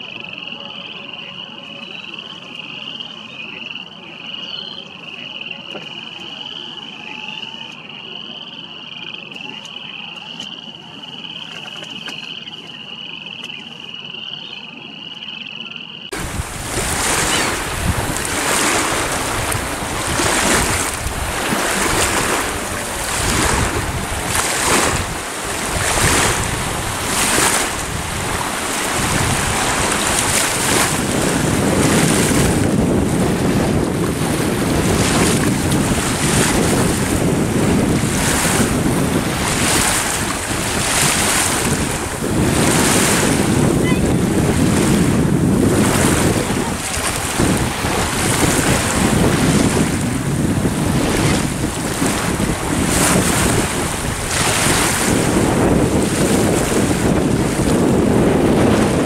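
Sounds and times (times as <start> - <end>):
waves splashing: 16.1 - 59.0
wind buffeting microphone: 16.1 - 59.0.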